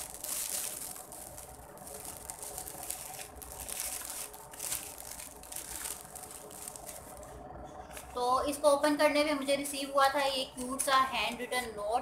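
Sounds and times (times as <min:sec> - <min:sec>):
cellophane crinkling: 0:00.0 - 0:07.4.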